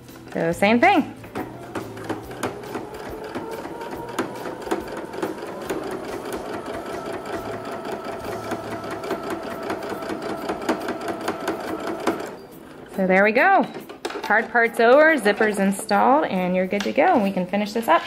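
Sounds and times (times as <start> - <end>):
sewing machine stitching: 0.9 - 14.4.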